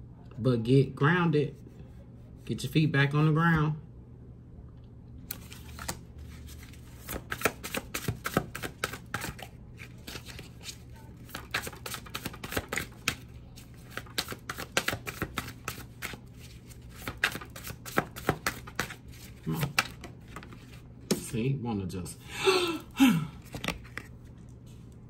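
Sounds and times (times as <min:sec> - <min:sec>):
cards being shuffled: 0:05.3 - 0:21.3, 0:23.4 - 0:25.0.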